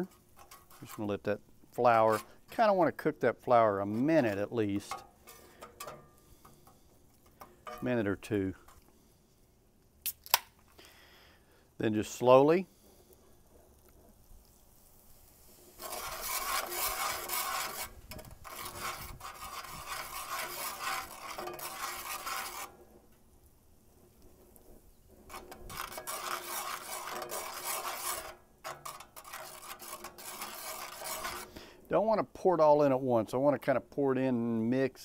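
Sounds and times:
metal spatula scraping skillet: 0:00.0 - 0:09.3, 0:15.3 - 0:23.1, 0:24.0 - 0:31.9.

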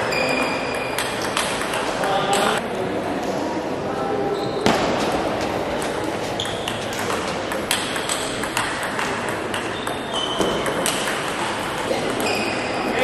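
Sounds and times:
distant ball clicks: 0:06.4 - 0:12.4.

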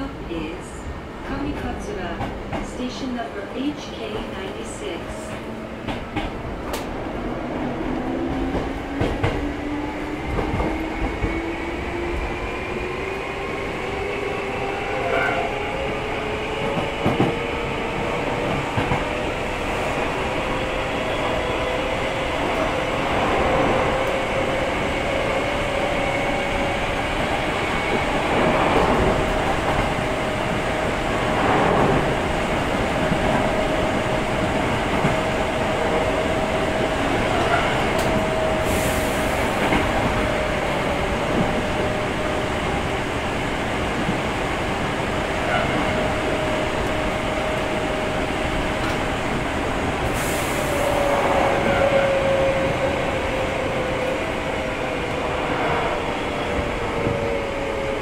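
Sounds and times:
train wheel rumble: 0:00.0 - 0:58.0
clacks over rail joints: 0:05.3 - 0:06.9.

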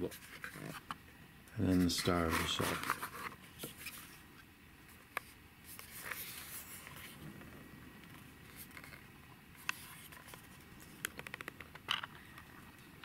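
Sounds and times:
plastic case rubbing and rustling: 0:01.7 - 0:04.2.

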